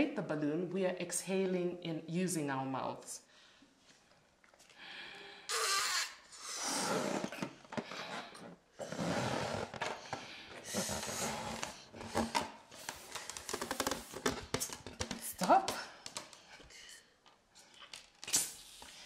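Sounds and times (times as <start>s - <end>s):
breaths in: 4.7s - 7.0s
people blowing up balloons: 5.4s - 9.8s, 10.6s - 11.9s, 18.2s - 19.0s.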